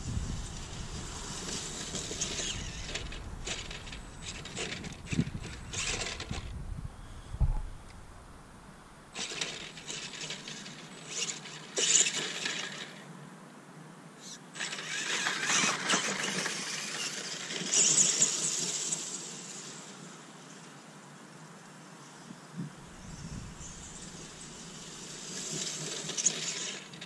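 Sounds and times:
electric motors whirring: 0:00.6 - 0:06.6, 0:14.6 - 0:18.9, 0:22.9 - 0:27.0.

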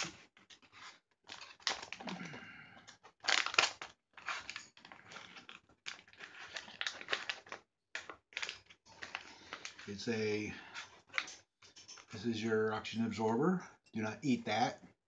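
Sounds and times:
plastic pouch crinkling and tearing: 0:00.0 - 0:02.3, 0:02.9 - 0:09.9.

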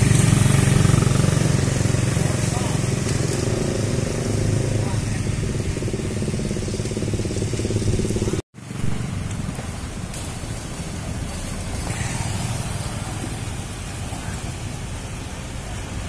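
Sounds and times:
motorcycle engine droning: 0:00.0 - 0:15.8
motorcycles passing: 0:00.0 - 0:16.0
street traffic noise: 0:00.0 - 0:16.0.

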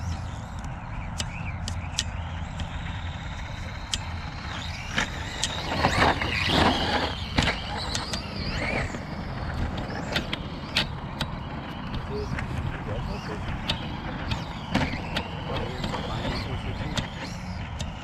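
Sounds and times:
electric motor whine: 0:00.0 - 0:18.0
steady low rumble: 0:00.0 - 0:18.0
trucks knocking on ground: 0:03.7 - 0:18.0
tyres scrabbling on dirt: 0:04.1 - 0:18.0.

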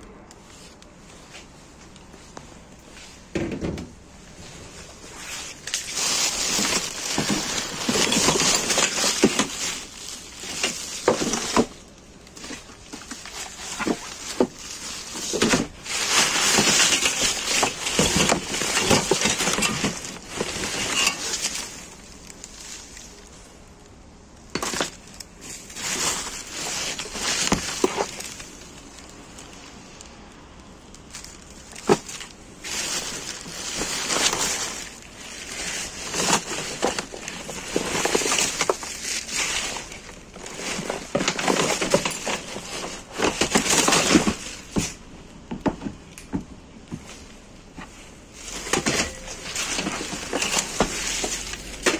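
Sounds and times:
plastic bags crinkling: 0:00.5 - 0:45.2, 0:46.7 - 0:51.9
hard items knocking: 0:03.3 - 0:04.0.

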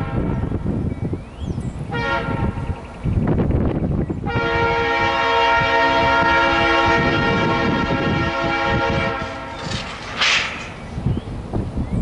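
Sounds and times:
locomotive air horn blast: 0:00.0 - 0:00.6, 0:01.9 - 0:02.6, 0:04.3 - 0:09.6
locomotive rumble: 0:00.0 - 0:12.0.

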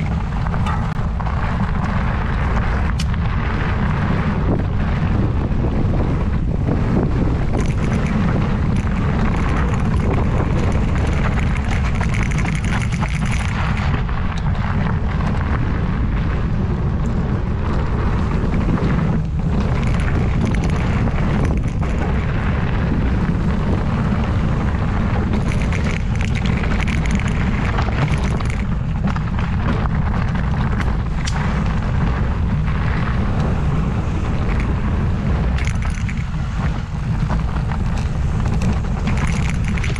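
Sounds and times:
bike rattling over dirt trail: 0:00.0 - 0:39.9
wind buffeting microphone: 0:00.0 - 0:39.9.

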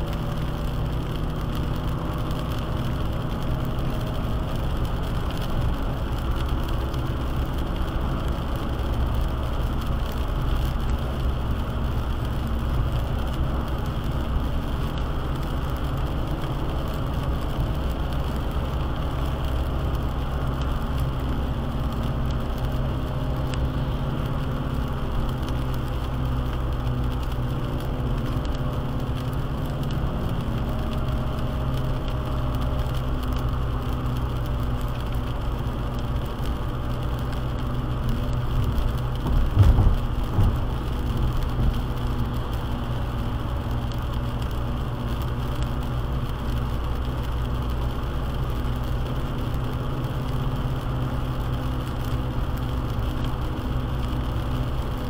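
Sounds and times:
car engine hum: 0:00.0 - 0:55.0
rain: 0:00.0 - 0:55.0
tyres hissing on wet road: 0:00.0 - 0:55.0.

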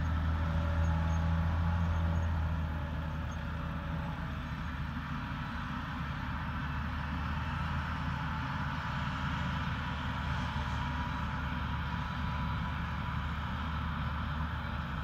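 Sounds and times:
forage harvester working: 0:00.0 - 0:15.0.

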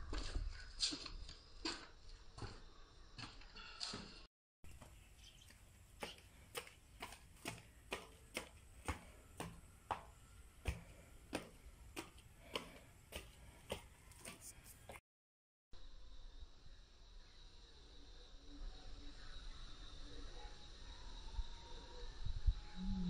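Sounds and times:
sandal footsteps on concrete: 0:00.1 - 0:15.0.

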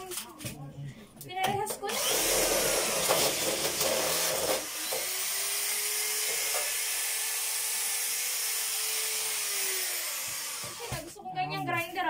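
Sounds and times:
power tool cutting and whining: 0:01.8 - 0:11.1.

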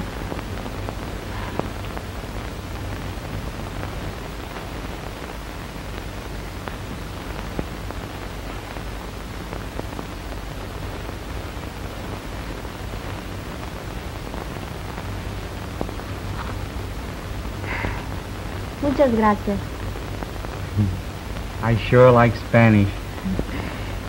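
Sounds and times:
film soundtrack surface hiss: 0:00.0 - 0:24.0.

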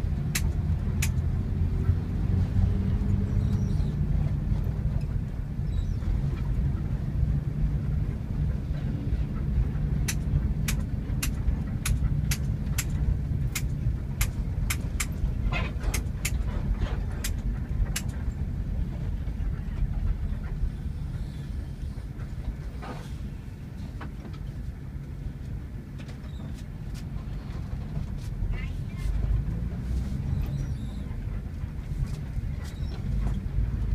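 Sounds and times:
bus engine and road noise: 0:00.0 - 0:33.9
sharp clicks: 0:00.3 - 0:01.2, 0:10.0 - 0:15.2.

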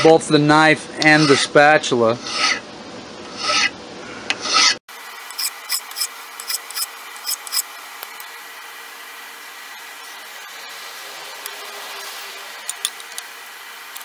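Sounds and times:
file rasping over metal: 0:01.0 - 0:01.6, 0:02.2 - 0:02.6, 0:03.3 - 0:03.8, 0:04.4 - 0:07.7.

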